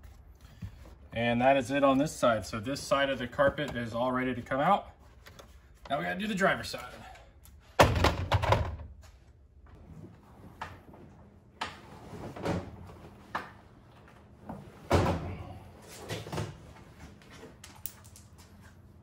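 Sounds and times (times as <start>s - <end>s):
carpet rustling and scraping: 9.6s - 14.9s.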